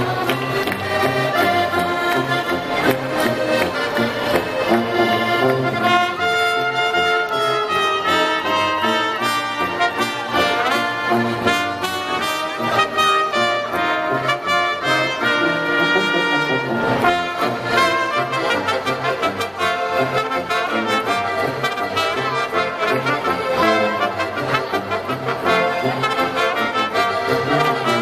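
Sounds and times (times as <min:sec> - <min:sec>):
brass band with accordion playing: 0:00.0 - 0:28.0.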